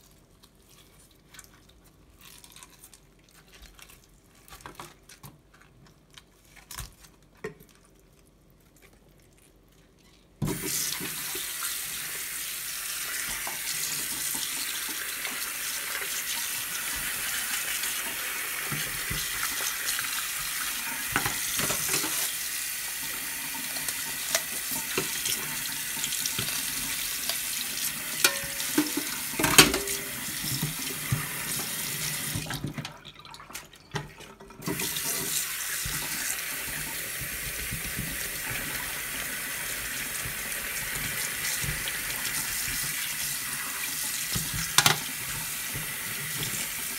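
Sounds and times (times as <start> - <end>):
tap running into metal sink: 28.2 - 32.9, 44.3 - 46.6.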